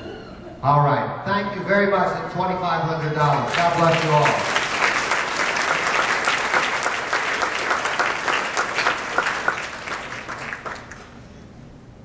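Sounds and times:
audience applauding: 3.3 - 11.3.

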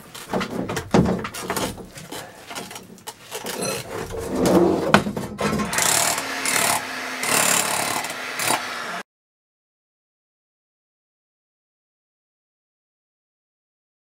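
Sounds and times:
scraping and rubbing on pipe: 0.0 - 5.2
loud rasping strokes: 5.7 - 9.0.

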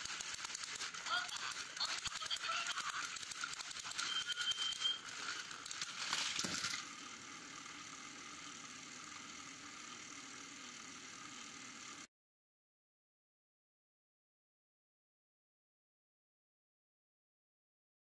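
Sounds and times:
toy train motors rattling and whirring: 0.0 - 12.1
toy engine falling with soft thump: 5.8 - 6.9.

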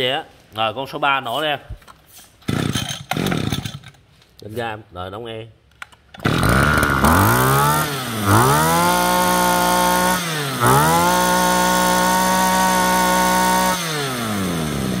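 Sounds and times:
brush cutter engine revving: 2.4 - 3.7, 6.2 - 15.0.

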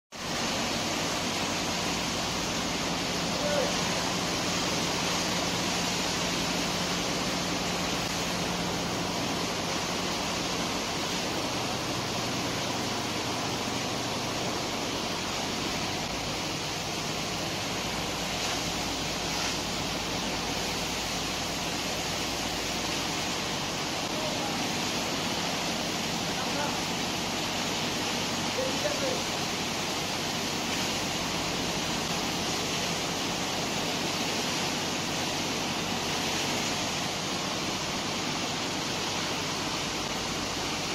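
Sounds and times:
high-pressure water jet rushing: 0.1 - 40.9.

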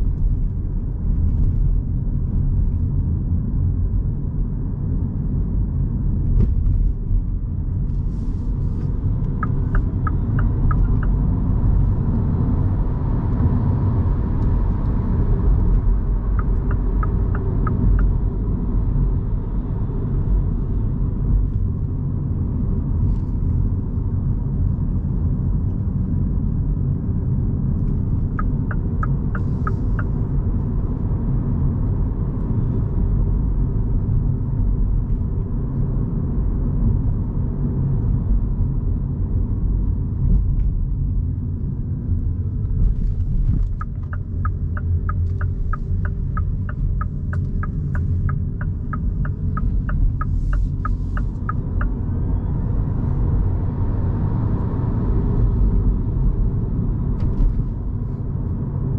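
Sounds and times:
road and tyre rumble: 0.0 - 58.9
turn indicator ticking: 9.2 - 11.8, 15.6 - 18.4, 28.3 - 30.2, 43.0 - 52.5.

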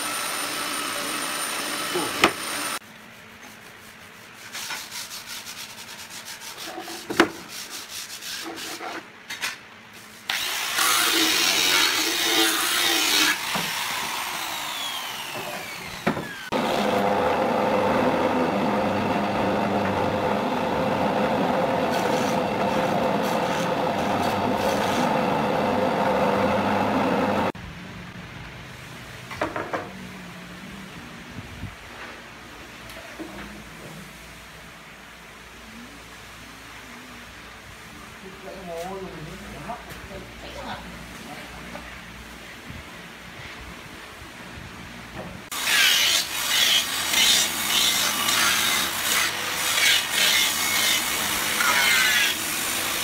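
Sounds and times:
wood planer running: 0.0 - 2.8, 10.3 - 27.5
wood scraping: 12.2 - 27.5.

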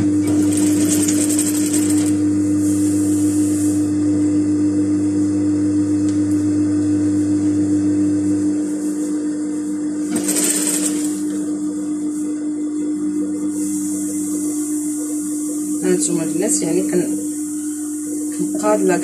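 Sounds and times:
sewing machine motor humming: 0.0 - 2.3, 10.0 - 15.6.

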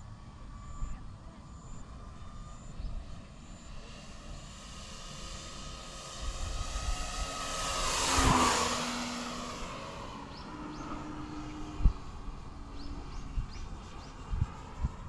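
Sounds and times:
model airplane motor flyby: 0.0 - 15.0.

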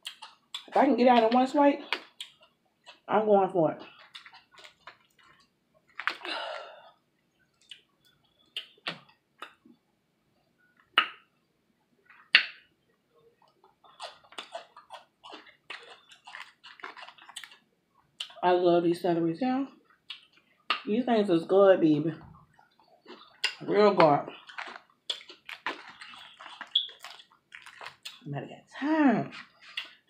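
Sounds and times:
wet chewing sounds: 0.0 - 3.1, 3.8 - 9.7, 12.0 - 18.4, 19.8 - 20.9, 22.4 - 28.3, 29.3 - 30.0
crawfish shells cracking: 3.9 - 6.4, 13.4 - 18.4, 22.7 - 28.3.

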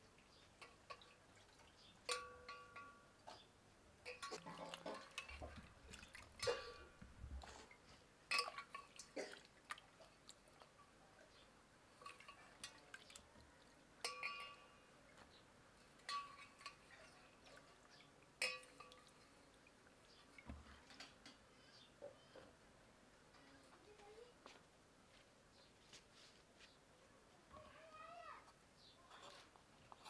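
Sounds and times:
water splashing and dripping: 0.2 - 10.8, 12.0 - 14.6, 16.0 - 21.4.

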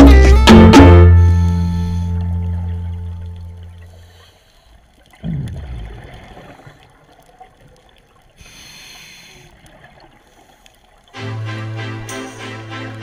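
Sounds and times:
exhaled bubbles burbling underwater: 5.0 - 8.4
hissing regulator inhale: 8.4 - 9.6.

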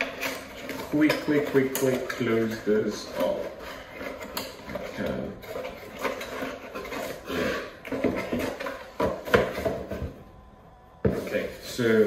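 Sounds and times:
cardboard rustling and scraping: 0.0 - 10.3.

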